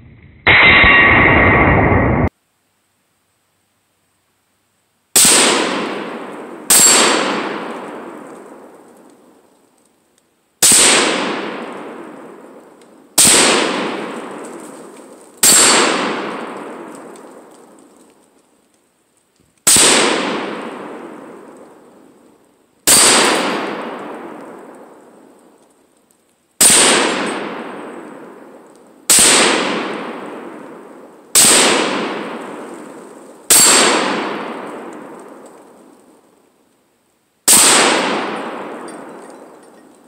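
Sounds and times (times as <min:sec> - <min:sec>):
gunshot echo rolling through woods: 0:00.0 - 0:02.3, 0:05.2 - 0:09.4, 0:10.6 - 0:18.5, 0:19.6 - 0:25.8, 0:26.6 - 0:36.4, 0:37.4 - 0:40.0
rifle shots: 0:00.5 - 0:02.3, 0:05.2 - 0:08.7, 0:10.6 - 0:12.5, 0:13.2 - 0:14.8, 0:15.4 - 0:17.3, 0:19.6 - 0:21.8, 0:22.9 - 0:25.0, 0:26.6 - 0:28.5, 0:29.1 - 0:32.8, 0:33.5 - 0:35.5, 0:37.5 - 0:39.7.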